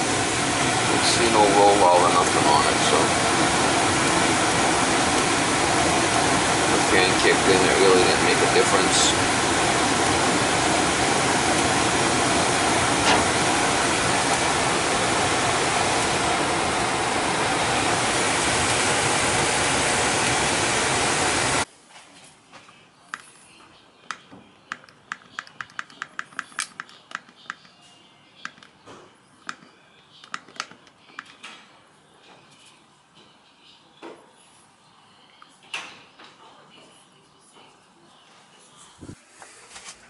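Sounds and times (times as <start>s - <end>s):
furnace rushing noise: 0.0s - 21.7s.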